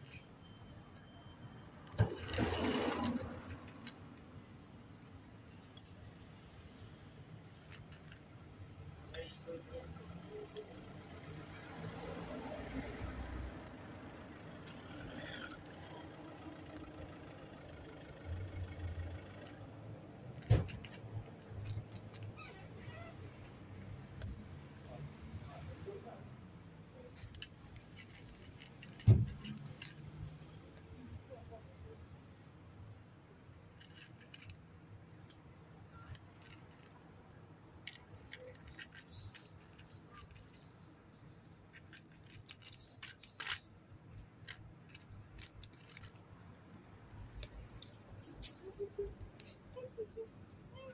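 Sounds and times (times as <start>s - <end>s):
passing vehicle engine rumble: 9.5s - 22.4s
cat crunching dry kibble: 20.2s - 22.4s, 37.7s - 49.6s.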